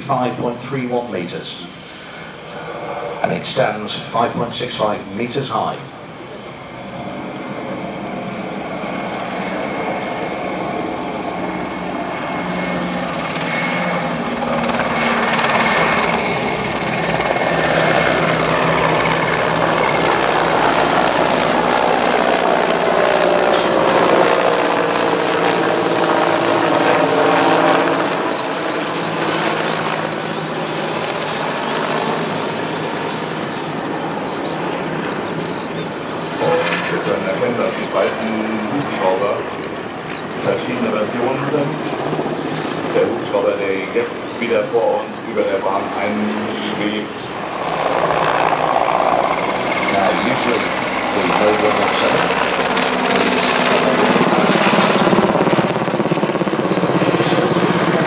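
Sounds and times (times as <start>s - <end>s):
helicopters flying past: 0.0s - 58.0s.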